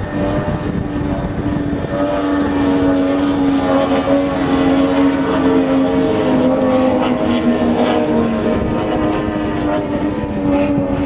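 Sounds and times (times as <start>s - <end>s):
outboard engine at high revs: 0.0s - 11.0s.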